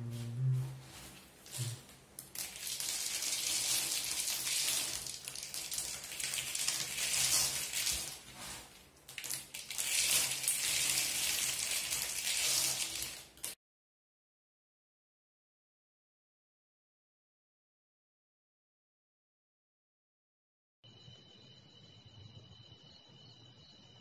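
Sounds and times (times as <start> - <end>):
matchsticks rustling and scraping: 1.0 - 13.6.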